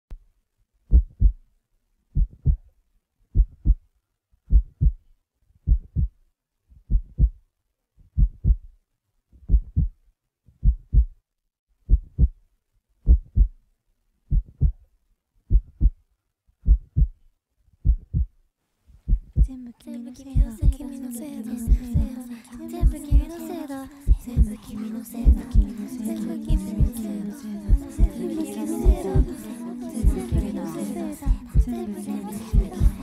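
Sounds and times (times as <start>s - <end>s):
heartbeat thumps: 0.9s - 1.4s, 2.2s - 2.7s, 3.4s - 3.8s, 4.5s - 5.1s, 5.7s - 6.2s, 6.9s - 7.4s, 8.2s - 8.7s, 9.4s - 10.0s, 10.6s - 11.2s, 11.9s - 12.4s, 13.0s - 13.6s, 14.3s - 14.8s, 15.5s - 16.0s, 16.6s - 17.2s, 17.8s - 18.3s, 19.0s - 19.6s, 20.4s - 20.8s, 21.7s - 22.1s, 22.8s - 23.3s, 24.1s - 24.6s, 25.2s - 25.7s, 27.7s - 28.2s, 28.8s - 29.4s, 30.0s - 30.5s, 31.3s - 31.8s, 32.5s - 33.0s.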